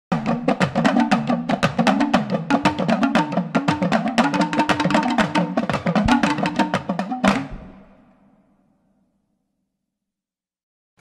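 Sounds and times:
news theme music with percussion: 0.1 - 7.9.

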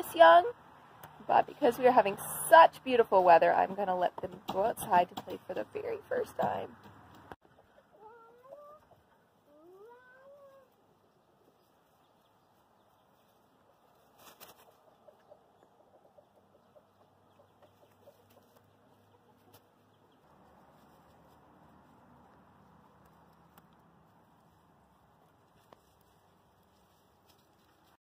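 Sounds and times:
rabbits rustling on dry leaves: 7.9 - 15.3, 17.2 - 28.0.

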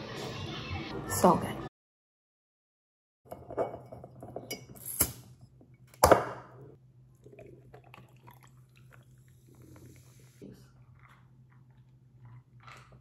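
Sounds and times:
dishes and utensils clinking: 3.3 - 5.1.

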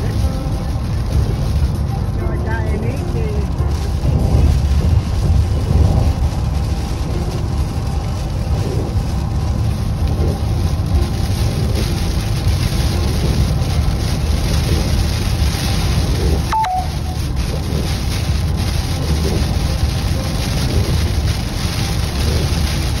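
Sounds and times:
car road rumble: 0.0 - 23.0
rain hissing on car: 0.0 - 23.0
two-note electronic beep: 16.5 - 17.2.

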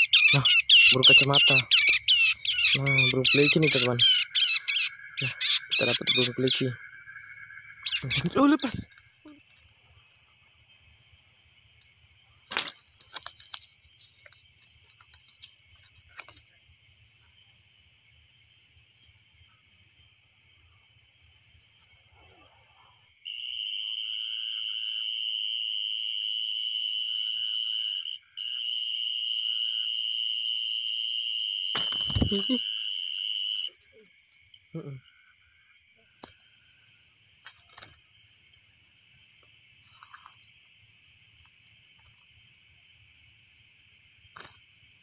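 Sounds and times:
crickets chirring: 0.0 - 45.0
loud insect trill: 0.0 - 45.0.

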